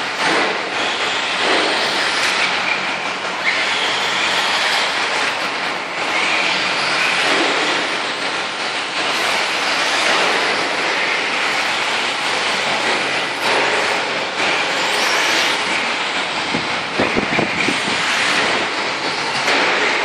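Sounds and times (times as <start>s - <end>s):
rc cars on dirt: 9.0s - 15.9s.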